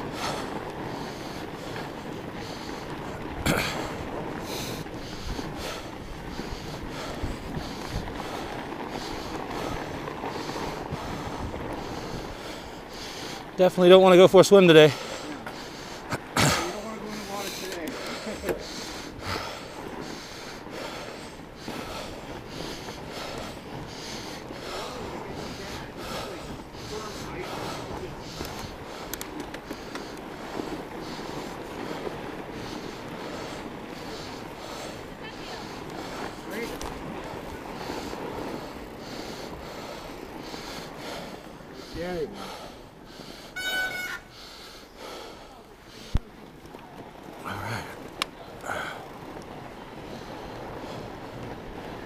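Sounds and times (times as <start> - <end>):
person breathing hard: 0.0 - 13.6, 14.9 - 43.6, 44.2 - 46.3, 47.4 - 49.4
bike tyres rushing on snow: 0.0 - 52.0
wind on microphone: 1.0 - 13.5.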